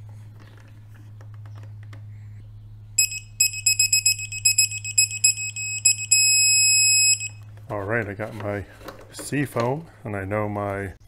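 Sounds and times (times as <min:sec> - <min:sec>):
torque wrench beeping rapidly: 0:03.0 - 0:07.4.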